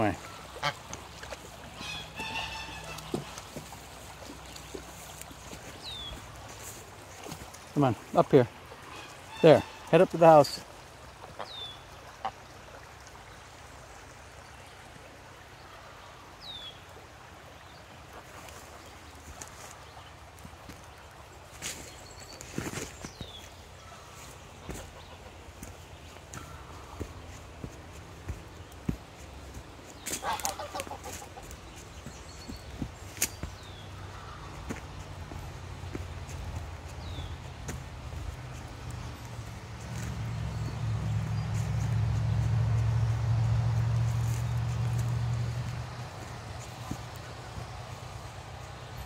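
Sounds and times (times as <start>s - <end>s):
footsteps on leafy dirt path: 0.0s - 9.9s, 18.4s - 49.0s
goose honking: 0.5s - 0.9s, 1.8s - 3.5s, 8.9s - 10.0s, 30.2s - 31.4s.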